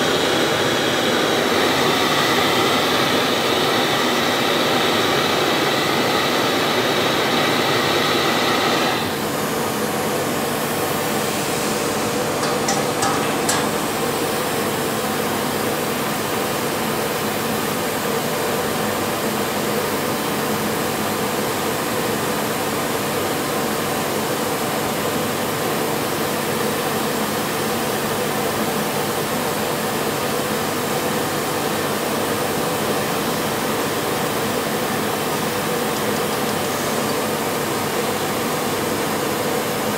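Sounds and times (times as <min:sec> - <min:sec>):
gas torch flame rushing: 0:00.1 - 0:14.8.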